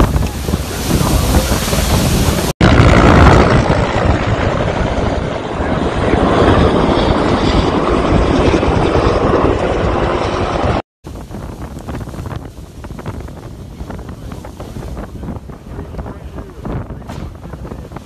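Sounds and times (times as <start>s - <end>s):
fire whirl roaring: 0.0s - 18.0s
wind buffeting microphone: 0.0s - 18.0s.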